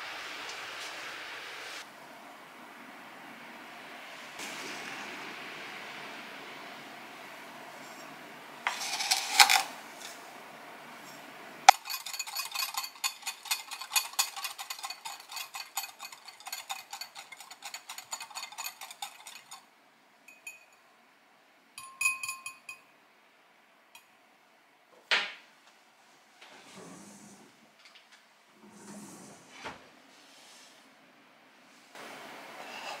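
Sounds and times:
sugar pouring into bowl: 8.7s - 9.7s
whisk clinking against glass bowl: 11.7s - 19.6s, 21.8s - 22.8s.

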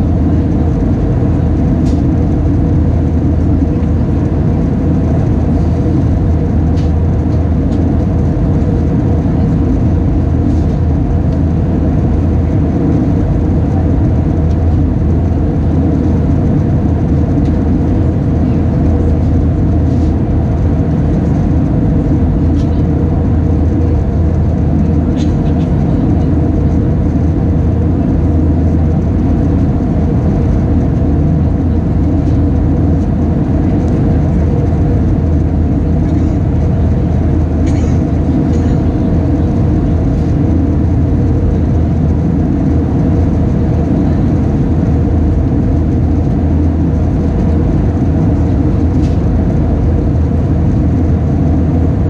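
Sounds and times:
airplane cabin engine drone: 0.0s - 52.0s.

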